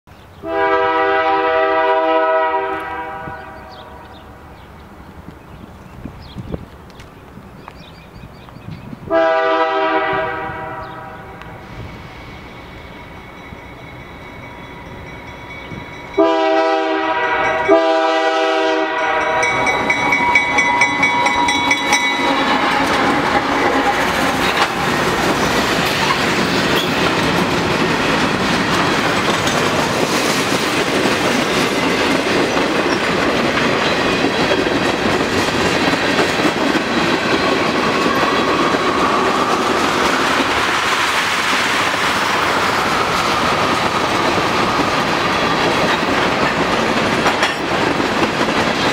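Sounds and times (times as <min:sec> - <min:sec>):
diesel locomotives passing: 0:00.2 - 0:48.9
train horn blasts: 0:00.4 - 0:04.1, 0:09.1 - 0:11.9, 0:16.1 - 0:24.8
train wheels clattering over rail joints: 0:19.4 - 0:48.9.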